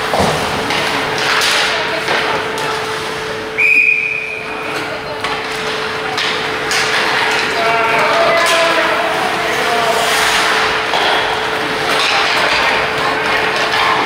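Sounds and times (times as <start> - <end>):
hockey sticks and puck knocking: 0.0 - 3.0, 4.7 - 14.0
skates on ice: 0.0 - 3.3, 4.3 - 14.0
referee's whistle blast: 3.6 - 4.4.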